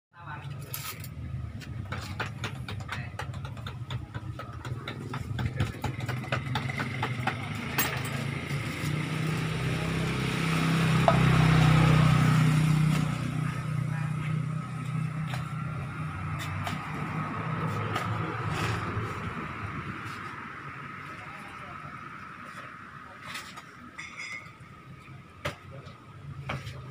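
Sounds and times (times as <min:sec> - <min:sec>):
motorcycle engine passing: 0:05.7 - 0:19.3.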